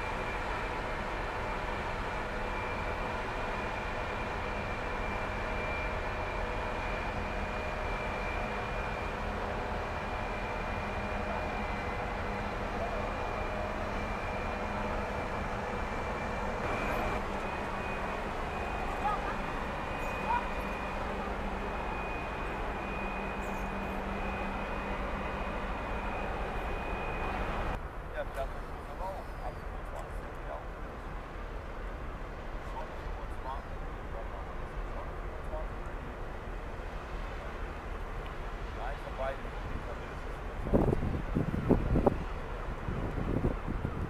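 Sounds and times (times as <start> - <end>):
thin high whine: 0.0 - 27.8
ferry engine rumble: 0.0 - 44.0.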